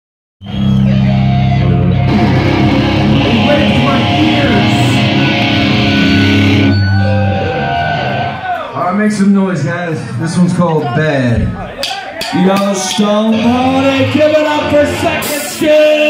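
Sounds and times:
drums: 0:00.4 - 0:09.3, 0:10.5 - 0:16.0
electric guitar chords: 0:00.5 - 0:08.4.

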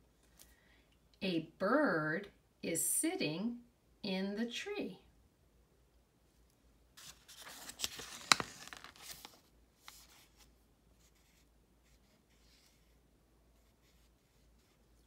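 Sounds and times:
book page turning: 0:07.0 - 0:12.9.

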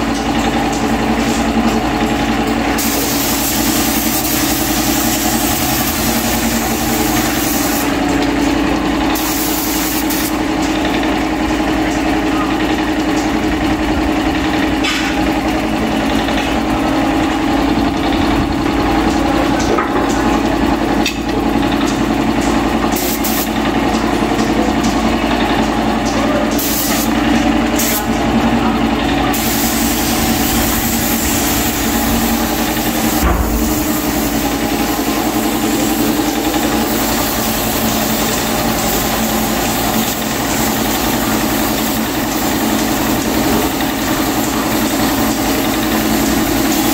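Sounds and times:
air compressor running: 0:00.0 - 0:46.9
spray gun hissing: 0:02.7 - 0:08.1, 0:09.1 - 0:10.5, 0:23.0 - 0:23.6, 0:26.6 - 0:27.2, 0:29.3 - 0:46.9.

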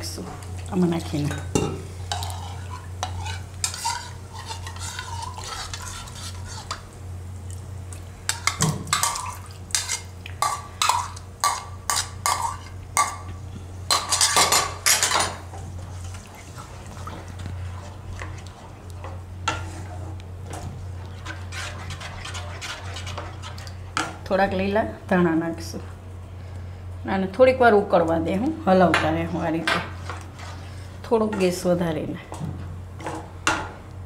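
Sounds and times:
steady low hum: 0:00.0 - 0:34.0
spatula scraping a wok: 0:02.0 - 0:06.9, 0:08.3 - 0:13.2, 0:13.9 - 0:20.2, 0:20.8 - 0:24.1, 0:29.9 - 0:31.6.

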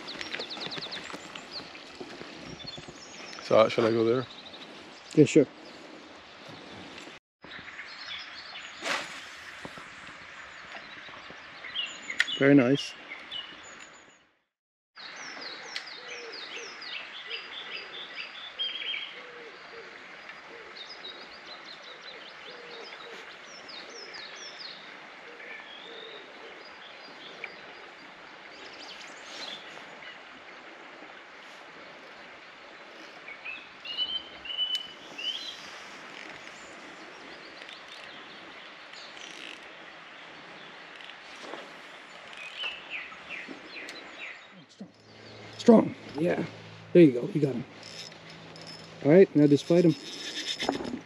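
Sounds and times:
songbirds chirping and singing: 0:00.0 - 0:08.8, 0:15.0 - 0:28.0, 0:32.7 - 0:51.0.

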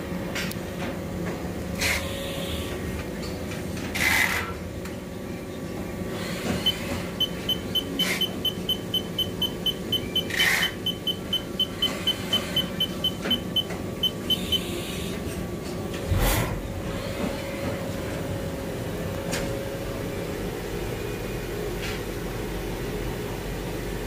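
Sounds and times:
machining centre humming: 0:00.0 - 0:24.0
short high beeps: 0:06.6 - 0:14.7.

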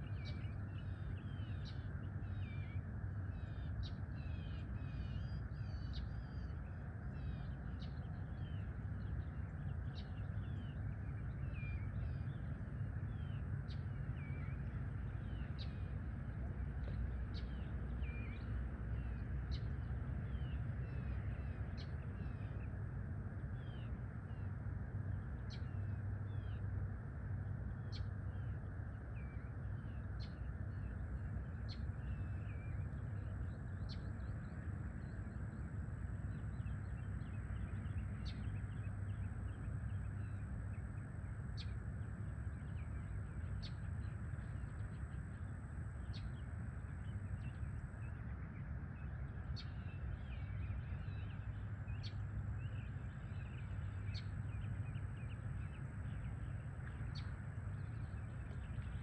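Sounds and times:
birds chirping and twittering: 0:00.0 - 0:59.0
low background rumble: 0:00.0 - 0:59.0.

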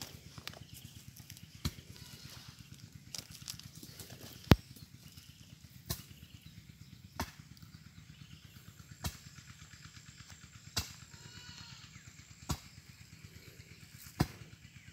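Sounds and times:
hand tool striking ground: 0:00.0 - 0:05.2, 0:05.8 - 0:06.2, 0:07.2 - 0:07.6, 0:09.0 - 0:09.2, 0:10.7 - 0:11.0, 0:12.4 - 0:12.8, 0:14.1 - 0:14.5.

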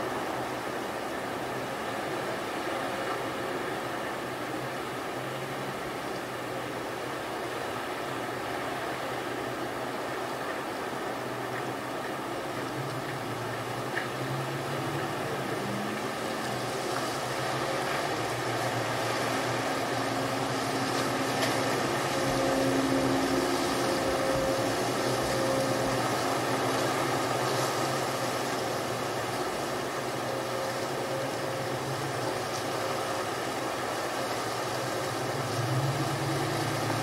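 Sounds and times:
surf: 0:00.0 - 0:37.0
low motor hum: 0:08.7 - 0:37.0.

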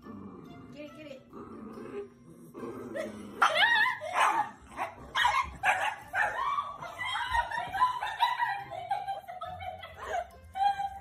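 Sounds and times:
dog barking and yipping: 0:03.4 - 0:08.6.

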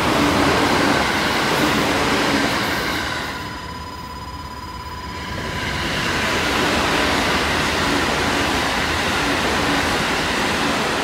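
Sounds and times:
electric train passing at speed: 0:00.0 - 0:11.0.

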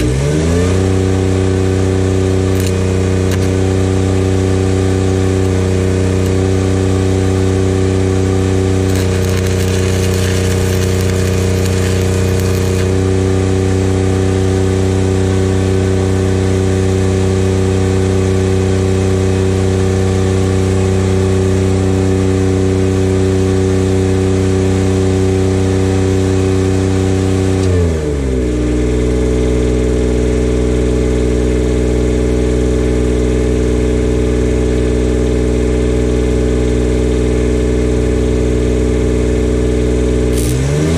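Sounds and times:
welding arc crackling: 0:00.0 - 0:00.8, 0:02.3 - 0:04.0, 0:05.3 - 0:06.6, 0:08.8 - 0:13.2, 0:40.3 - 0:40.9
welder engine running: 0:00.0 - 0:14.8, 0:40.0 - 0:40.9.

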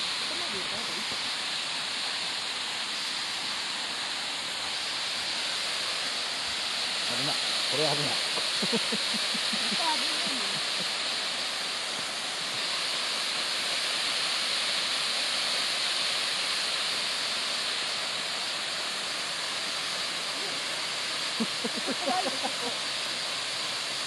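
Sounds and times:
waterfall rushing: 0:00.0 - 0:24.0
person speaking: 0:07.1 - 0:10.8, 0:21.7 - 0:22.7.

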